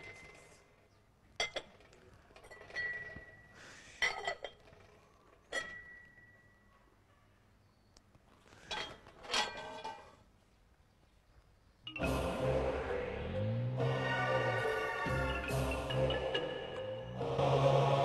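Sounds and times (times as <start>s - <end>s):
dishes clinking: 1.4s - 4.8s.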